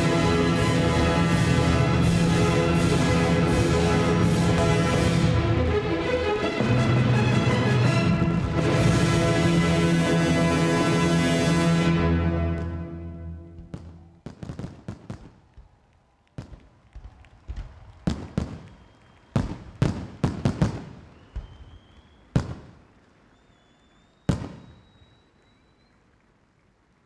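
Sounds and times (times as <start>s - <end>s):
show music: 0.0s - 14.1s
firework explosions: 13.5s - 15.8s, 16.4s - 25.4s.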